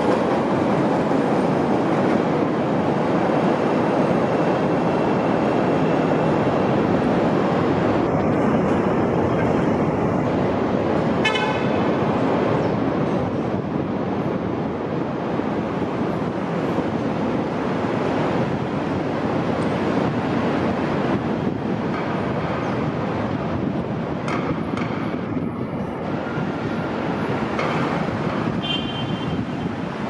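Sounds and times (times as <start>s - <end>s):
train rumbling on track: 0.0s - 30.0s
train horn toot: 11.2s - 11.8s, 28.6s - 29.4s.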